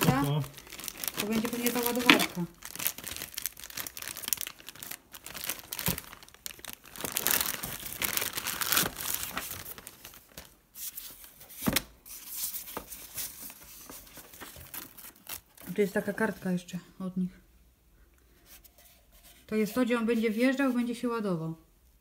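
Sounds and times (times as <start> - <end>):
plastic and foam crinkling: 0.0 - 16.6.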